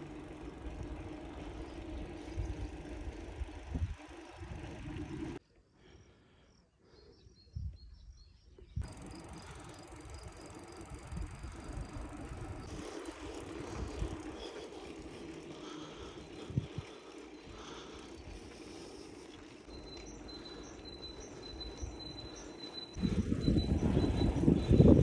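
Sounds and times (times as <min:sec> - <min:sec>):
bicycle rolling on road: 0:00.0 - 0:05.4, 0:08.8 - 0:25.0
wind on microphone: 0:23.0 - 0:25.0.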